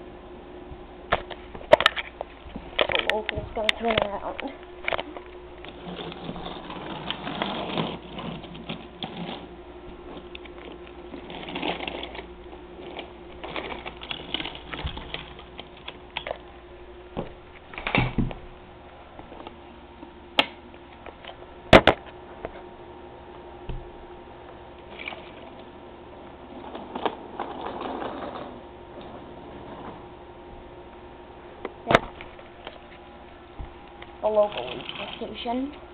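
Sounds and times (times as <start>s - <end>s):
toy train electric hum: 4.8s - 16.4s, 24.8s - 30.0s, 34.2s - 35.6s
wheels clattering over rails: 26.5s - 30.1s.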